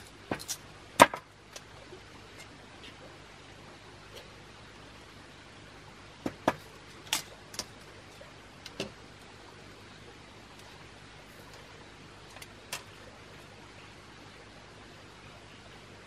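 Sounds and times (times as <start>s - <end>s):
bamboo pieces clicking and knocking: 0.0s - 2.6s
faint steady hiss: 0.0s - 16.0s.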